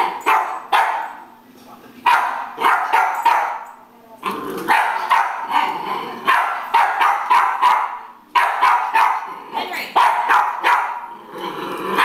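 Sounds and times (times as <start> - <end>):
puppy yapping: 6.3 - 9.3, 10.0 - 11.1.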